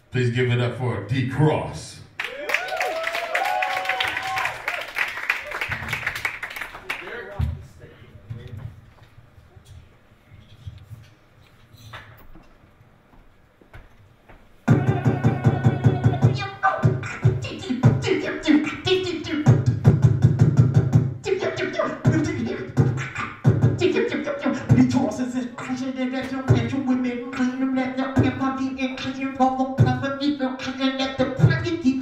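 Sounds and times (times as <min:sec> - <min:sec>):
person beatboxing: 0:14.7 - 0:32.0.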